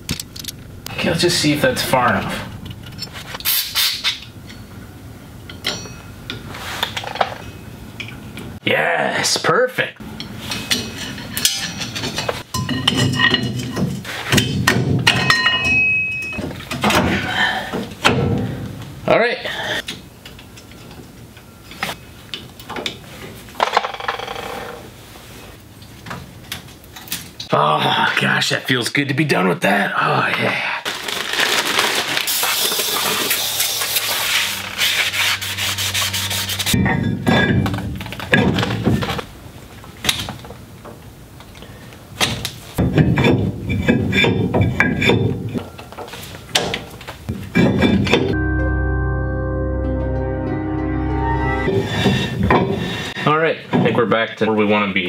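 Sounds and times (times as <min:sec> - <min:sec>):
metal scraping: 0:00.0 - 0:04.8, 0:32.4 - 0:39.2
tool scraping metal with ringing: 0:05.7 - 0:06.2, 0:33.8 - 0:37.8.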